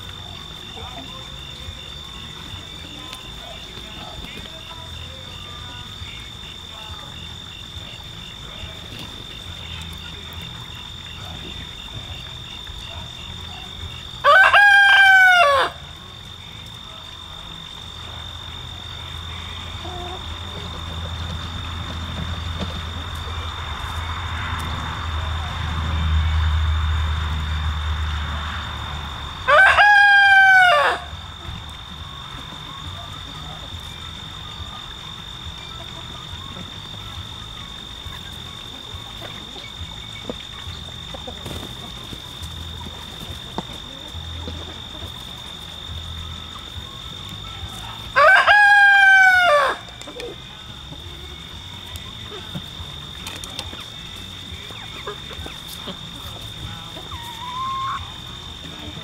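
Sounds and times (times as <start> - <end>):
rooster crowing: 14.2 - 15.9, 29.0 - 31.4, 48.0 - 50.0.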